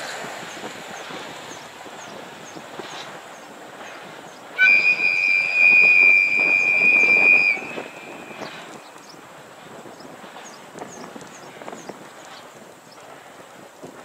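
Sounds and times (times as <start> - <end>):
locomotive running noise: 4.5 - 10.3
locomotive whistle blast: 4.6 - 9.1.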